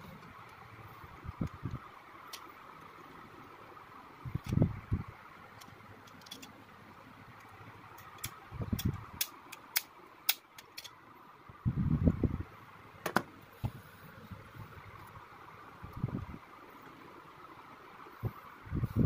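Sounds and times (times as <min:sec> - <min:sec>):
steady background hiss: 0:00.0 - 0:19.0.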